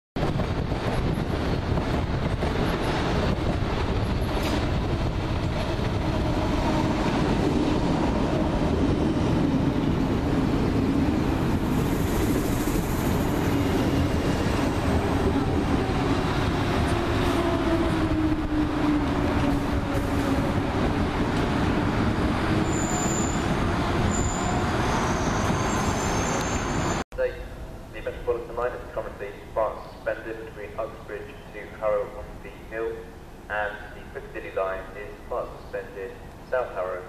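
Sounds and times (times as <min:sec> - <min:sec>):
train wheels rumbling on rails: 0:00.2 - 0:27.0.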